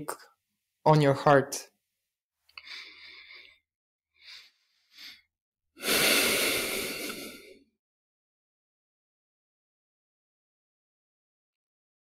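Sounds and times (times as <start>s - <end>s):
man breathing: 2.6s - 7.7s
long heavy sigh: 5.8s - 7.6s.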